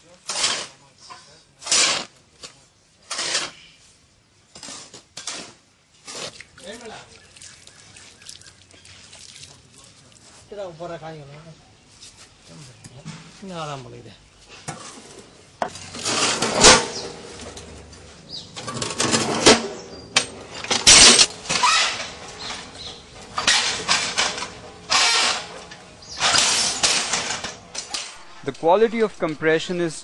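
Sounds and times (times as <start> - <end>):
block press scraping and clanking: 14.6 - 29.4.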